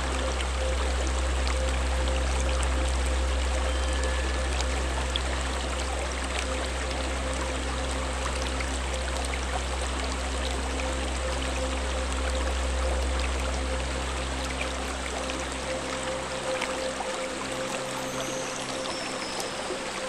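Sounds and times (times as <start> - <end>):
low steady hum: 0.0 - 20.0
stream rushing over rocks: 0.0 - 20.0.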